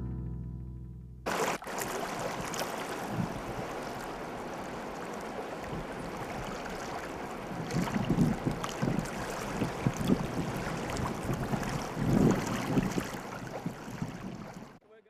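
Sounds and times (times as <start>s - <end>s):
guitar chord: 0.0s - 1.2s
waves lapping and splashing: 1.3s - 14.8s
wind buffeting microphone: 2.0s - 14.8s.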